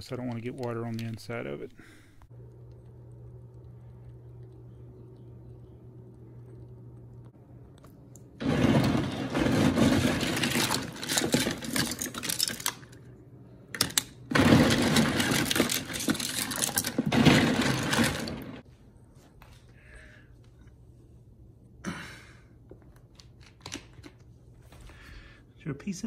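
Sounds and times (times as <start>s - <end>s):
plastic pieces clattering: 8.4s - 13.1s, 13.7s - 18.6s.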